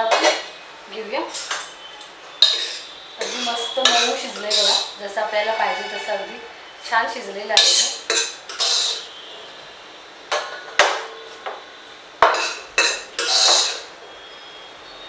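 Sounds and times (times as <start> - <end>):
metal spoon scraping pot: 2.4 - 6.3, 7.6 - 9.1, 12.2 - 13.9.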